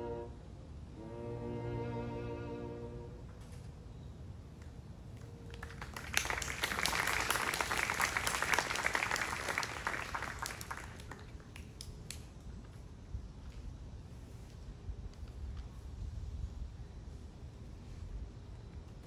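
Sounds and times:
small audience applauding: 4.7 - 12.4.

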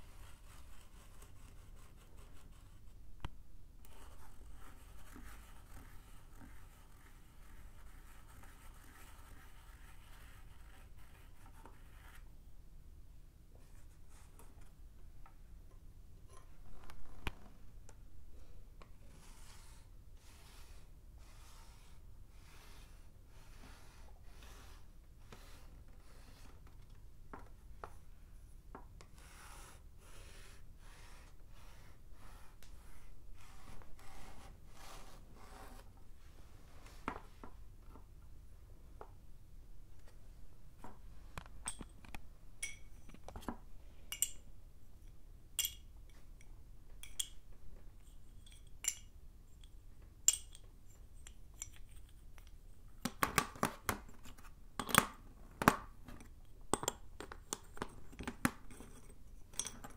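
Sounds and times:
chalk rubbing on chalkboard: 29.2 - 35.9.

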